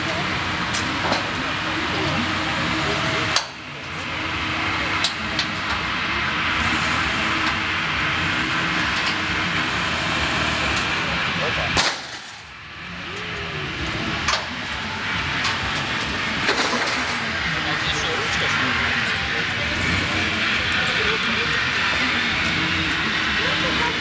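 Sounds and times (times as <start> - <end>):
background voices: 12.9 - 24.0.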